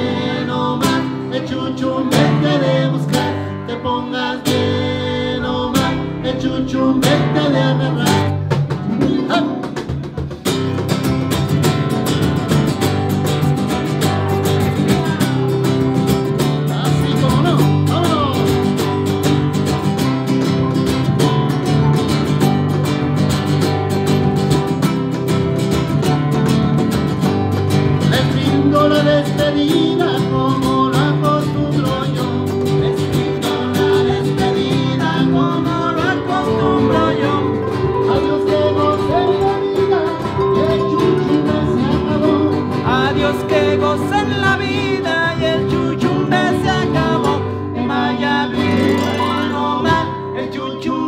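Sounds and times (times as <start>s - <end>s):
man singing: 0.0s - 10.4s, 14.4s - 18.9s, 27.9s - 51.0s
harp and strummed acoustic guitar: 0.0s - 51.0s.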